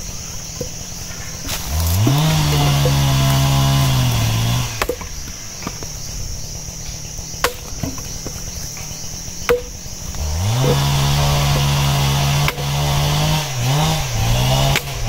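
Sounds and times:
chainsaw engine idling and revving: 0:00.0 - 0:05.8, 0:06.4 - 0:15.0
high insect buzz: 0:00.0 - 0:15.0
chopping knocks on wood: 0:04.8 - 0:05.9, 0:07.4 - 0:08.4, 0:09.5 - 0:09.8.

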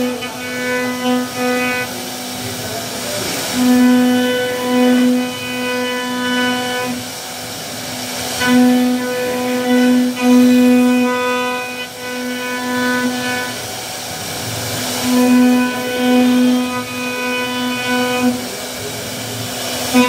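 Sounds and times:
bit cutting wood: 0:00.0 - 0:02.0, 0:03.0 - 0:07.0, 0:08.3 - 0:13.6, 0:15.0 - 0:18.5
router spindle hum: 0:00.0 - 0:20.0.

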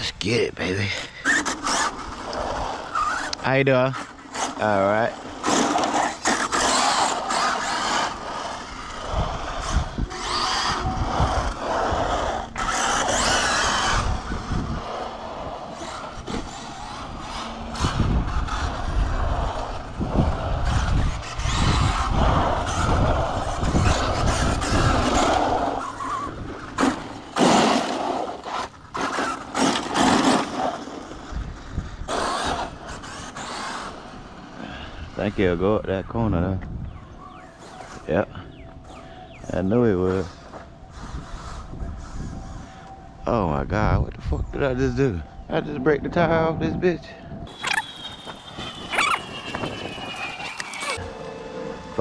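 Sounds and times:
tyre noise on pavement: 0:01.2 - 0:35.6, 0:47.5 - 0:52.0
electric motor whirring: 0:47.5 - 0:52.0.

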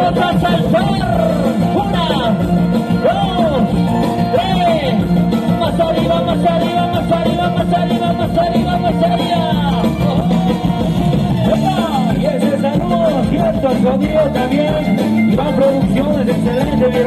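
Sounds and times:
live band music through speakers: 0:00.0 - 0:17.0.

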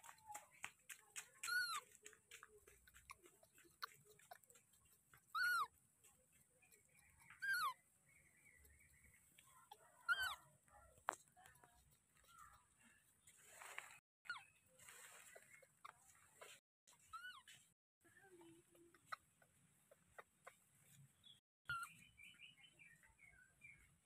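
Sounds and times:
baby monkey high-pitched calls: 0:01.4 - 0:01.8, 0:05.3 - 0:05.7, 0:07.2 - 0:07.8, 0:09.7 - 0:10.4, 0:16.9 - 0:17.5, 0:21.7 - 0:22.0
faint rustles: 0:11.0 - 0:14.0, 0:14.6 - 0:19.1.

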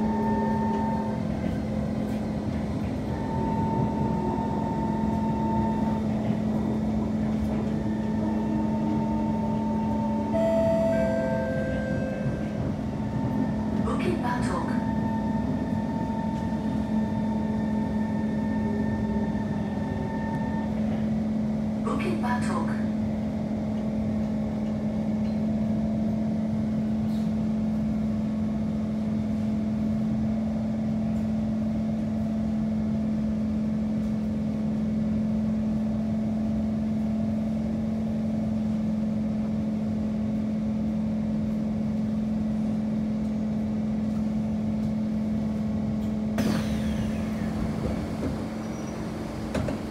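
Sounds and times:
train doors hissing open: 0:46.3 - 0:49.9.

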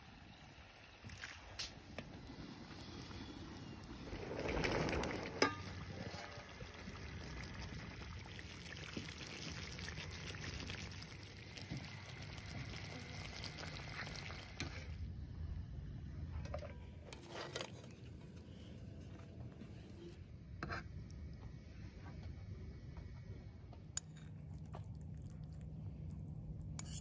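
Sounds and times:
pots simmering: 0:00.0 - 0:15.2
ladle pouring sauce: 0:01.1 - 0:15.0
wood fire crackling: 0:01.4 - 0:14.8.

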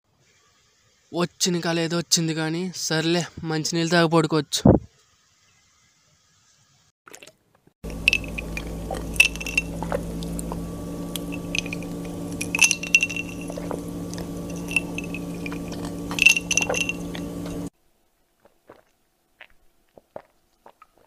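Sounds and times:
steady hum: 0:07.8 - 0:17.7
drinking glass clinking: 0:07.9 - 0:17.7.

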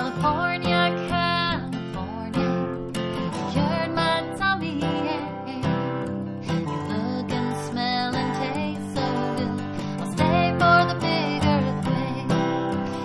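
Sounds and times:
acoustic guitar strummed: 0:00.0 - 0:13.0
woman singing: 0:00.0 - 0:13.0.

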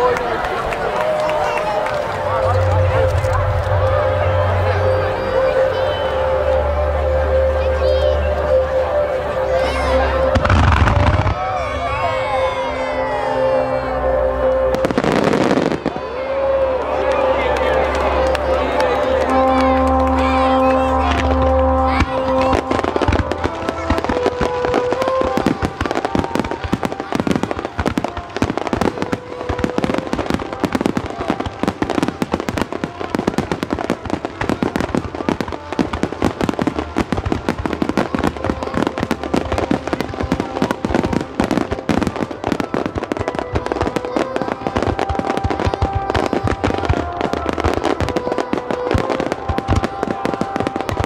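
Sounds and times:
music playing: 0:00.0 - 0:51.0
fireworks bangs and crackles: 0:09.7 - 0:13.2, 0:14.6 - 0:51.0.

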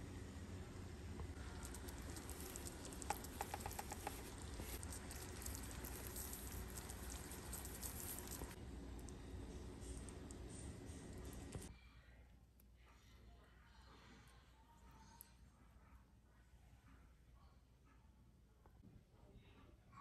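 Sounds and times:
low steady hum: 0:00.0 - 0:17.8
gravy simmering and crackling: 0:00.1 - 0:11.7
pepper mill clicks: 0:01.6 - 0:08.6.

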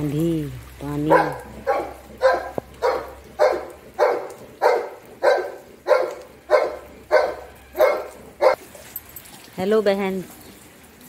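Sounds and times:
dog barking: 0:01.1 - 0:08.6.

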